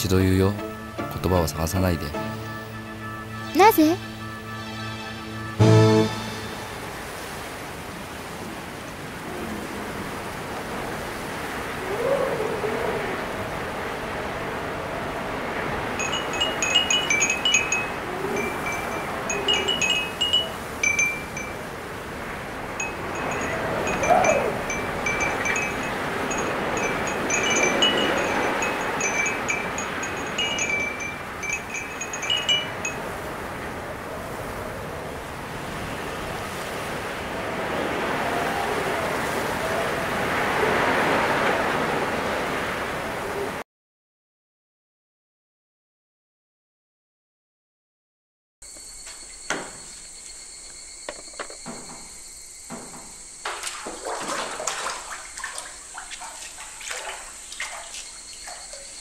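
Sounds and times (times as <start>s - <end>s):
background hiss: 3.5s - 37.2s
wind chimes tinkling: 15.8s - 33.6s
faint wavering whistle: 16.0s - 21.7s, 22.7s - 33.0s.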